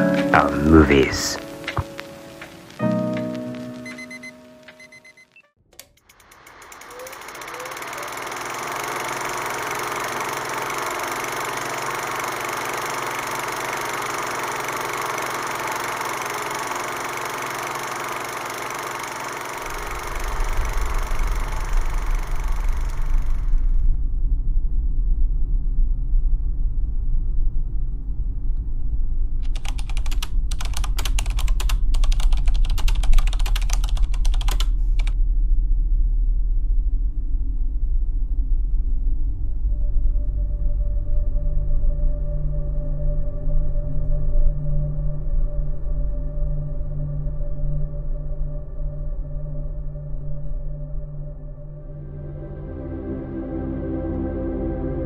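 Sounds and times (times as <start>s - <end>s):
steady hiss: 0.0s - 4.8s
typewriter clicks: 29.4s - 35.2s.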